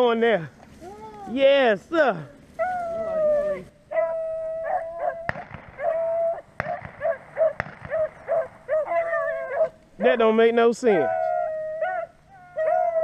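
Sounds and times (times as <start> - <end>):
beagle baying: 2.6 - 13.0
sharp snaps: 6.6 - 8.8.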